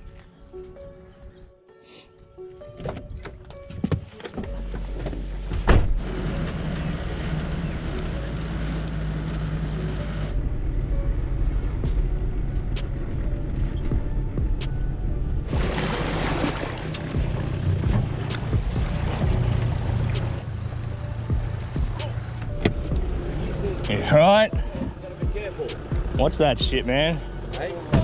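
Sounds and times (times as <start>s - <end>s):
car engine starting and running: 4.2s - 28.0s
car door thumping shut: 5.5s - 6.0s.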